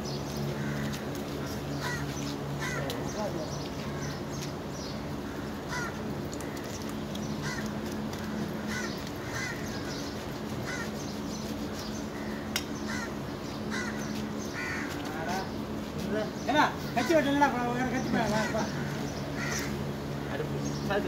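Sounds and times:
crows cawing: 0:00.5 - 0:04.2, 0:05.2 - 0:11.1, 0:12.1 - 0:15.6, 0:16.9 - 0:20.4.

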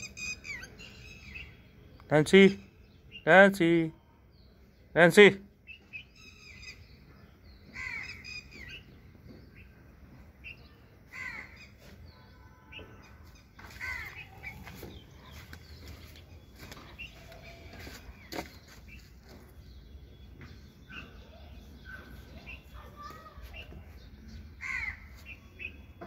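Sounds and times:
short falling bird calls: 0:10.5 - 0:19.0.

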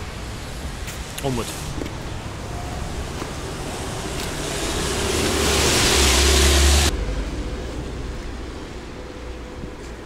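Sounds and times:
car passing by: 0:01.5 - 0:09.2.

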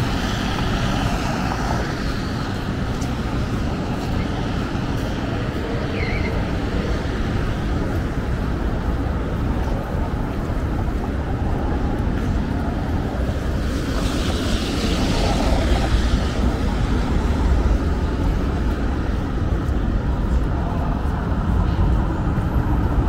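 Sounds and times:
traffic rumble: 0:00.0 - 0:23.0.

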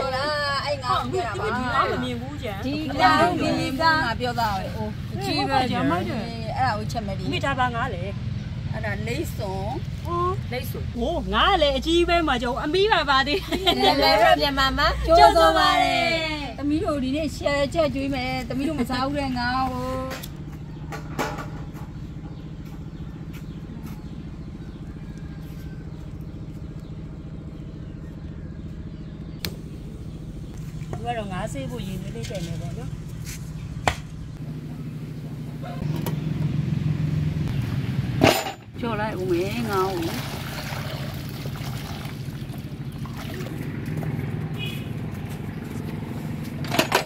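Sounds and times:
low mechanical hum: 0:00.0 - 0:47.0
engine idling: 0:19.3 - 0:39.9
water splashing into metal basin: 0:39.3 - 0:43.7.

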